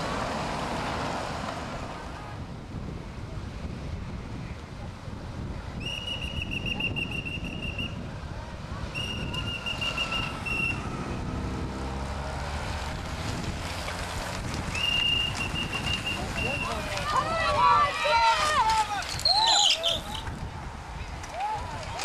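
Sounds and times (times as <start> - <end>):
wind noise on microphone: 0.0 - 22.0
pea whistle blasts: 5.8 - 8.0, 9.0 - 10.9, 14.7 - 16.7
motorcycle passing: 6.8 - 18.6.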